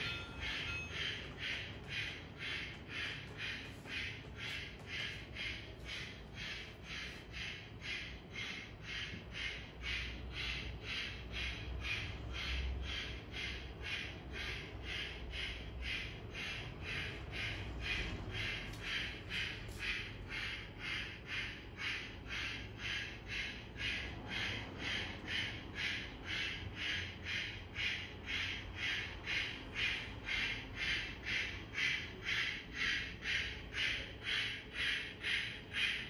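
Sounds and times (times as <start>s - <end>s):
model steam locomotive chuffing: 0.0s - 36.0s.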